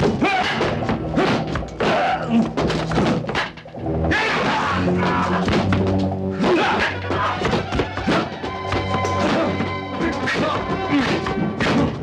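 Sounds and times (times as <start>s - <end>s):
dramatic film score: 0.0s - 12.0s
punches and thuds: 5.4s - 9.6s, 10.3s - 12.0s.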